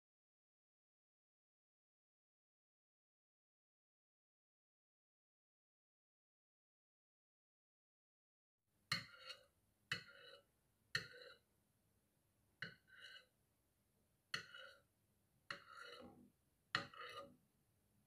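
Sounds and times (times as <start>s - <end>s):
metal spoon scraping a plate: 8.9s - 11.5s, 12.6s - 13.4s, 14.3s - 14.9s, 15.5s - 17.4s.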